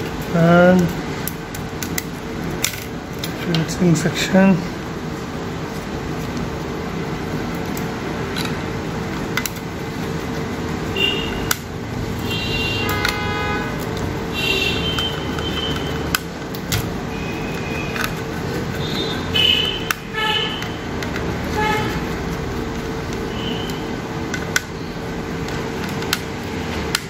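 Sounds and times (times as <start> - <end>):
steady hum: 0.0 - 27.0
vehicle horns honking: 10.9 - 11.6, 12.2 - 16.1, 18.8 - 22.2, 23.3 - 24.0
screwdriver and metal parts clicking: 17.5 - 21.3.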